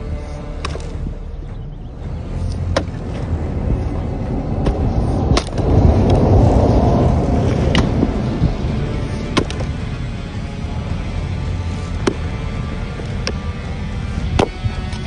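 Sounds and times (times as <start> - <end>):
low rumble: 0.0 - 15.0
axe splitting wood: 0.6 - 0.9, 2.6 - 3.0, 9.3 - 9.7, 11.9 - 12.3, 14.3 - 14.6.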